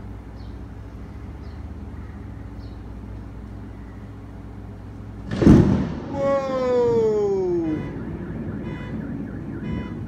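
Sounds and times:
thunderstorm rumble: 5.3 - 10.0.

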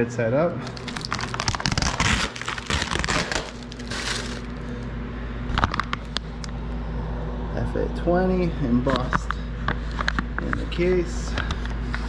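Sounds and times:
steady low hum: 0.0 - 12.0
plastic sheeting crinkling: 0.6 - 4.7
plastic crackles: 0.6 - 4.8.

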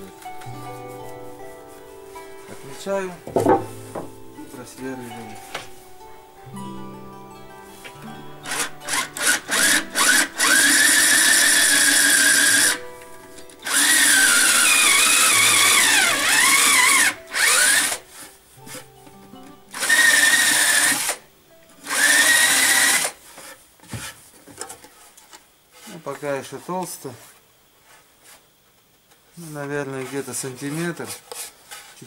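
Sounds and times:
cordless drill boring into wood: 8.4 - 12.8, 13.6 - 18.0, 19.8 - 21.2, 21.8 - 23.2.

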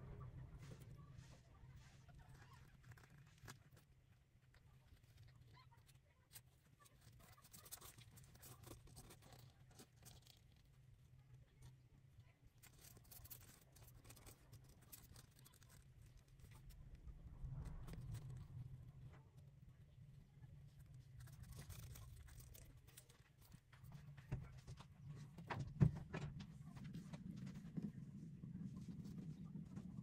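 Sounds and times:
low steady hum: 0.0 - 6.9
kittens scratching on cardboard: 0.6 - 10.9, 12.5 - 17.0, 20.6 - 29.8.

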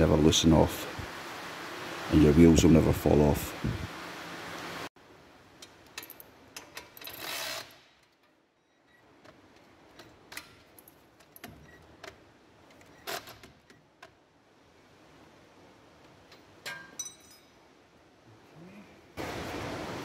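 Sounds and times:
tool and metal parts clinking: 5.6 - 13.8, 16.2 - 17.7.

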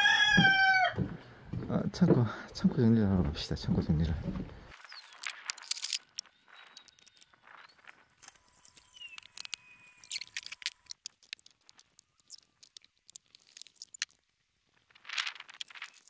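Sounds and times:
objects clicking and rustling: 4.7 - 14.2, 14.9 - 16.0.

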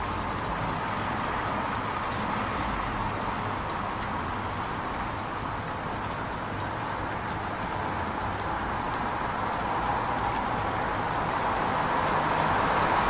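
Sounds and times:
low traffic rumble: 0.0 - 13.0
rain on city street: 0.0 - 13.0
faint drip ticks: 3.0 - 11.4.

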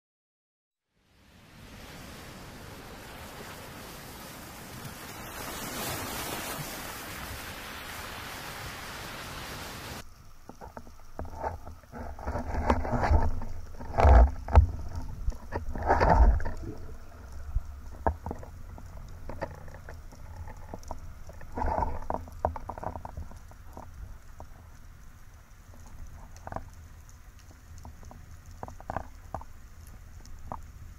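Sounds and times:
steady hiss: 1.0 - 12.1, 12.7 - 30.9
low underwater rumbles: 10.1 - 30.9.

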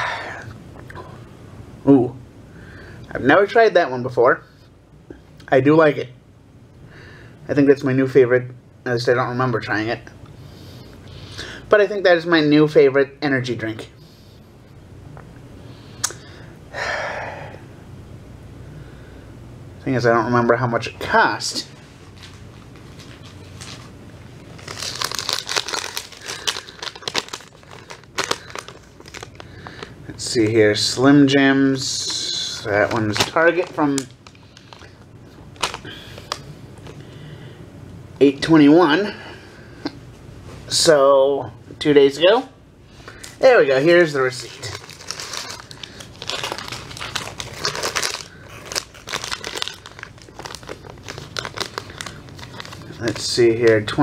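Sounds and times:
paper crinkling: 21.6 - 30.4, 31.8 - 37.0, 43.2 - 54.0.

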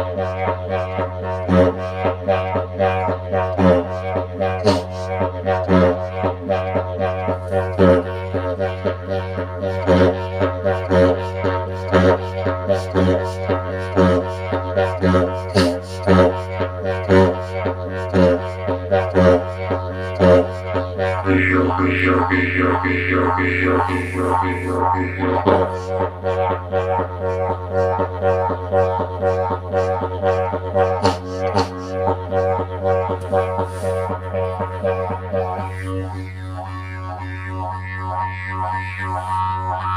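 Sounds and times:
didgeridoo drone: 0.0 - 39.9.

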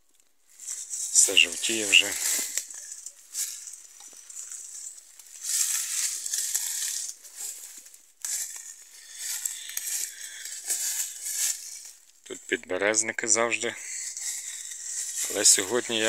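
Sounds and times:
footsteps crunching dry leaves: 0.4 - 12.4, 13.5 - 16.0.

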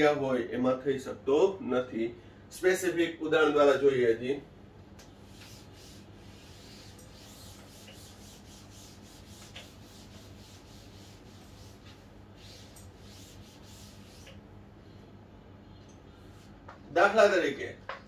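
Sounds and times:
cloth wiping a chalkboard: 5.2 - 14.4.

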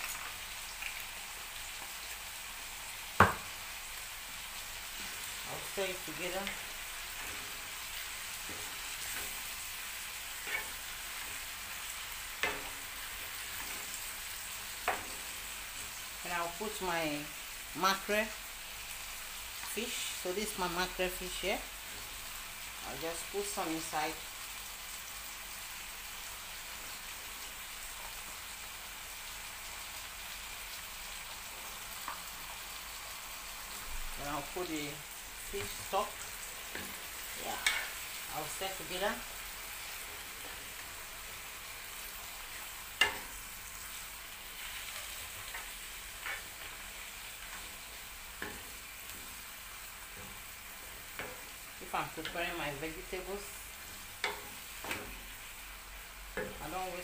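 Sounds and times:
vegetables sizzling in a frying pan: 0.0 - 57.0
wooden spoon knocking on pan: 3.2 - 3.5.

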